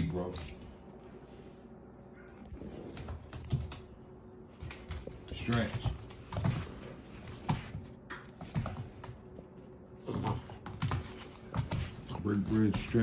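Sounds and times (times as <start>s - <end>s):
puppy claws clicking on hard floor: 2.8s - 4.0s, 4.6s - 9.3s, 10.1s - 13.0s.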